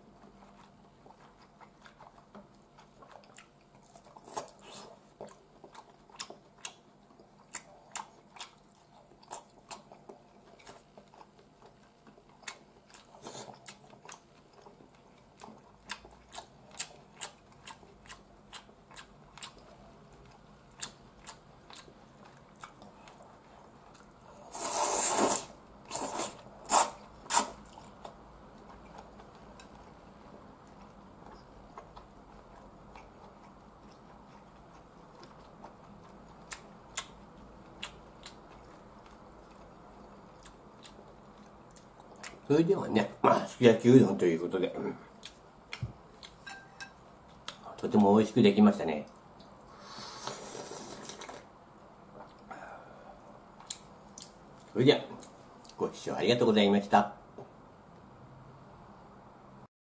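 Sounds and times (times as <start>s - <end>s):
man chewing with mouth clicks: 0.0s - 42.5s, 45.1s - 47.8s, 49.1s - 55.8s
noodle slurping: 24.4s - 27.6s, 49.8s - 51.5s.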